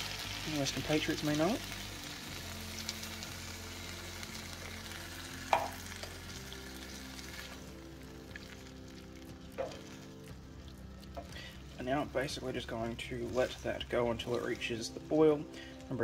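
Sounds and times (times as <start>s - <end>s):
food sizzling in a frying pan: 0.0s - 16.0s
spatula stirring food: 5.6s - 15.8s.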